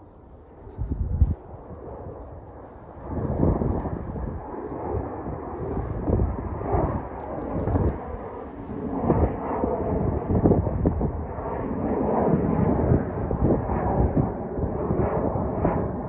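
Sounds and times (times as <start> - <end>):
jet engine rumble: 0.0 - 16.0.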